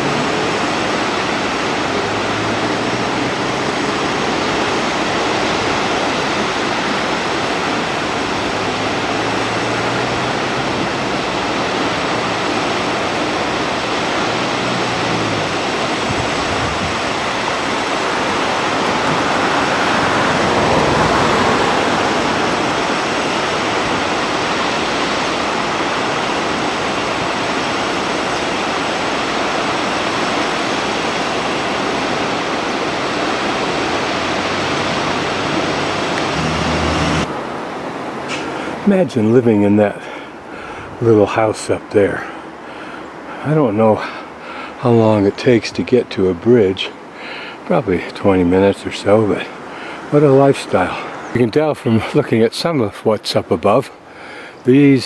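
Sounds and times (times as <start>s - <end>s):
waterfall rushing onto rocks: 0.0s - 52.8s, 53.6s - 55.0s
low hum: 33.4s - 37.4s.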